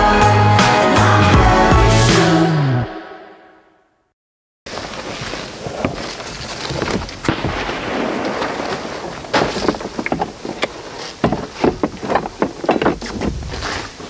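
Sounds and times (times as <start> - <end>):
wind buffeting microphone: 6.7 - 14.0.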